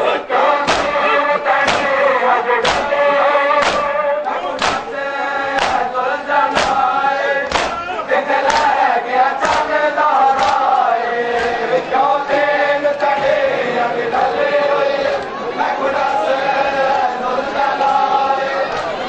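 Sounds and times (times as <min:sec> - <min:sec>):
crowd of men chanting: 0:00.0 - 0:19.0
hands slapping chests: 0:00.6 - 0:01.0, 0:01.6 - 0:02.0, 0:02.6 - 0:03.0, 0:03.6 - 0:04.9, 0:05.5 - 0:05.9, 0:06.5 - 0:07.8, 0:08.4 - 0:08.8, 0:09.4 - 0:11.6.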